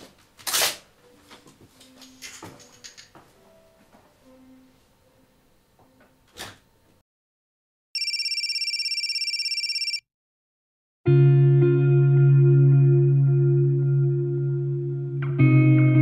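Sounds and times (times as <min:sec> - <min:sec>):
telephone ringing: 0:08.0 - 0:10.1
guitar music: 0:11.1 - 0:16.0.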